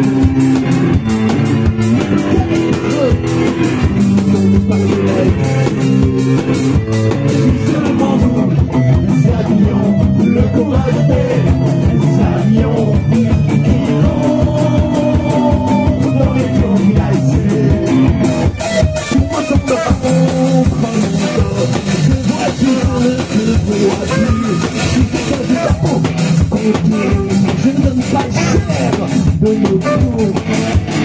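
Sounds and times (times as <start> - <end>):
drum kit: 0.0 - 31.0
strummed electric guitar: 0.0 - 31.0
saxophone: 23.8 - 26.0, 29.7 - 30.4.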